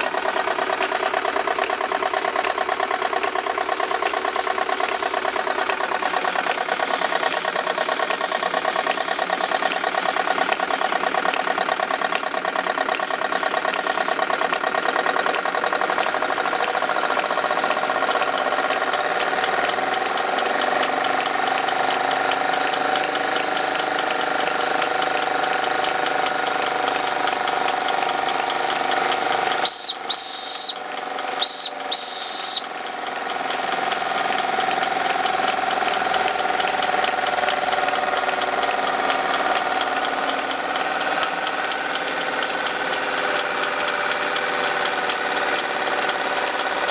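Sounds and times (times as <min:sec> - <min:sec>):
model steam engine clattering: 0:00.0 - 0:46.9
steam whistle toots: 0:29.6 - 0:32.8.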